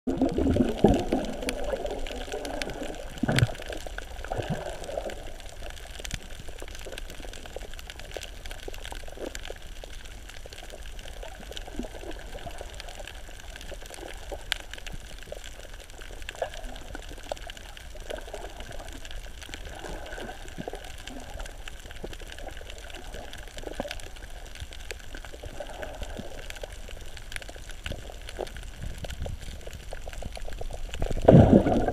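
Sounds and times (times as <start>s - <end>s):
sharp underwater clicks: 0.1s - 10.8s
underwater sloshing and gurgling: 0.1s - 31.9s.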